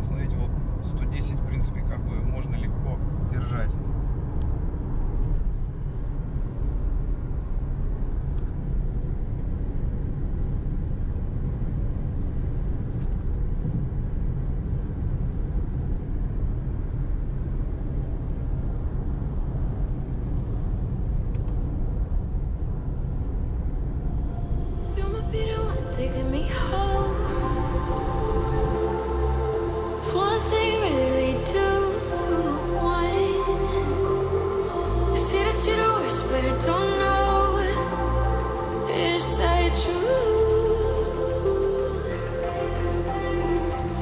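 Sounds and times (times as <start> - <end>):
car cabin road noise: 0.0 - 44.0.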